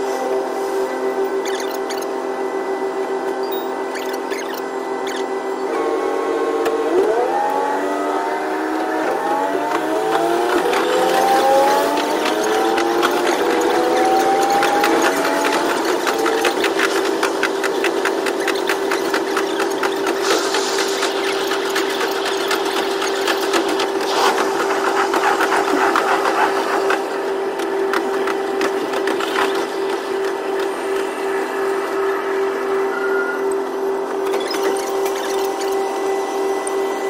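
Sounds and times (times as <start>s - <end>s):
diesel railcar engine whine: 0.0s - 37.0s
rapid ticking and rattling: 9.7s - 31.1s.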